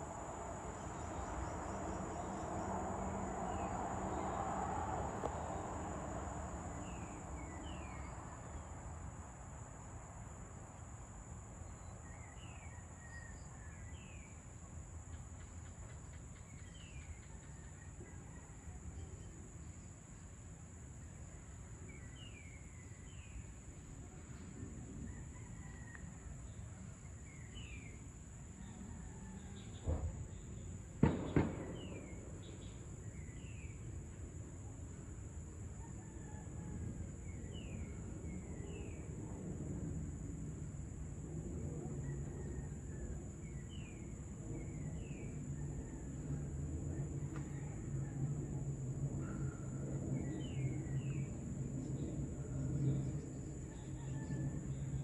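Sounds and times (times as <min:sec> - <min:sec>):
insects droning: 0:00.0 - 0:55.0
low background rumble: 0:36.8 - 0:55.0.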